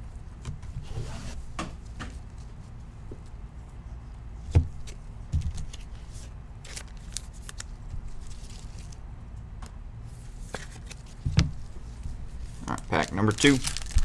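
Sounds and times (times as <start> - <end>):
low steady hum: 0.0 - 14.0
trading cards rustling: 12.4 - 14.0.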